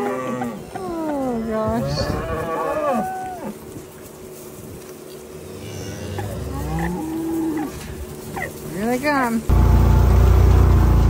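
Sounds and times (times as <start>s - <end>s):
cattle lowing: 0.0s - 9.5s
vehicle engine humming: 3.2s - 11.0s.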